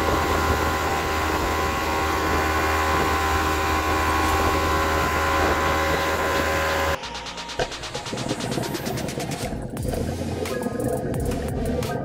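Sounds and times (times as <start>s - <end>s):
water rushing along hull: 0.0s - 7.0s
boat motor humming: 0.0s - 11.8s.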